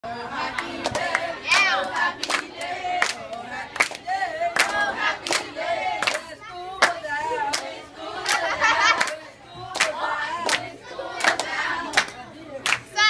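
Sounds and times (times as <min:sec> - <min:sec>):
children singing in unison: 0:00.1 - 0:12.1
children clapping along: 0:00.5 - 0:12.9.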